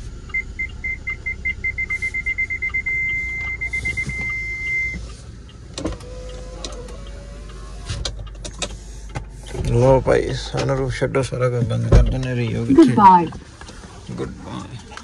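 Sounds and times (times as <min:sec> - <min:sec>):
parking sensor beeping: 0:00.1 - 0:08.4.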